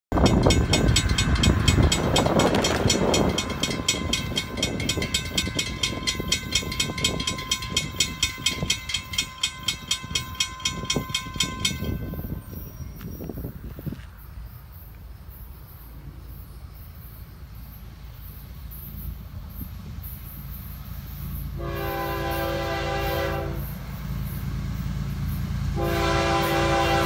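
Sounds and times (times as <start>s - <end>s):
crossing warning bell ringing: 0.1s - 14.0s.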